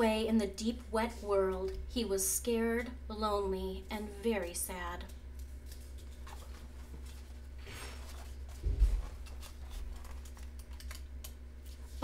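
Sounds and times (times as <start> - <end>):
low steady hum: 0.0 - 12.0
paper page rustle: 5.4 - 12.0
dull thump of book handled: 8.5 - 9.2.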